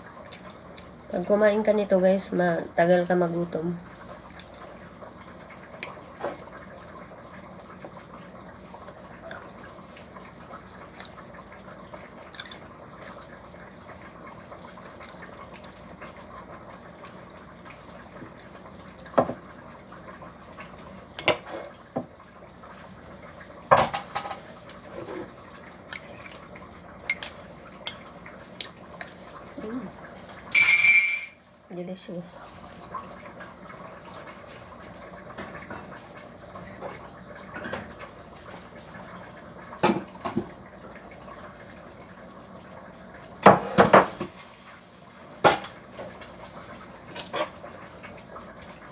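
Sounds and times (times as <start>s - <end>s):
low kitchen background: 0.0s - 48.9s
tableware clattering: 30.6s - 31.4s.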